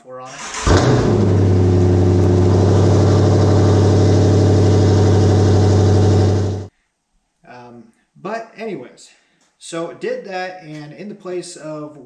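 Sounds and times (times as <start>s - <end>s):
car engine idling loudly: 0.6s - 6.7s.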